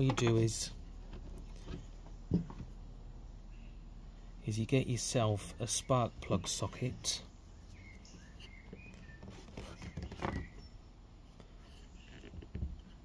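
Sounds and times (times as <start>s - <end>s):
faint handling noise: 7.7s - 13.0s.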